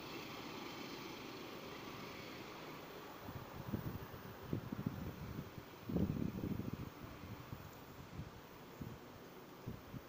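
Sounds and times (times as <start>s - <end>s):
faint steady hiss: 0.0s - 10.0s
wind buffeting microphone: 3.2s - 10.0s.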